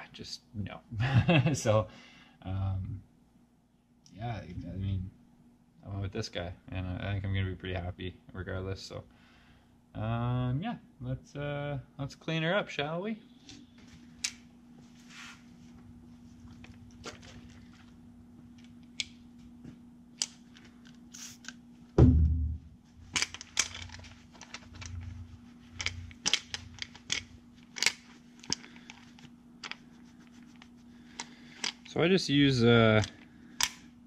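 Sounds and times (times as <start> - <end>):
steady low hum: 0.0 - 34.0
heavy thump: 22.0 - 22.7
tools clicking and scraping: 23.1 - 29.8, 30.5 - 31.9.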